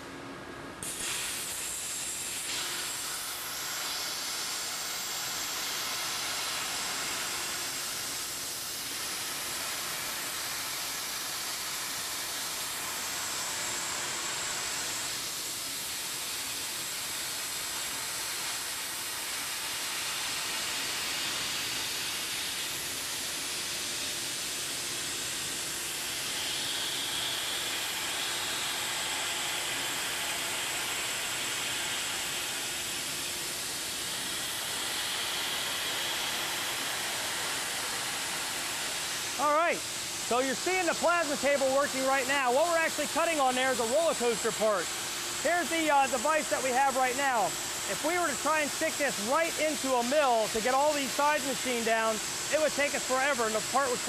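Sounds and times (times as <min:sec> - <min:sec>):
plasma torch hissing: 0:00.8 - 0:54.0
thin high whine: 0:39.3 - 0:54.0.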